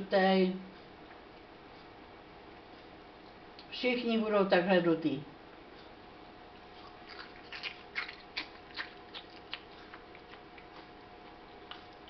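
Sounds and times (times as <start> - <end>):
faint steady hum: 0.0 - 12.0
chewing crisp snacks: 6.7 - 12.0.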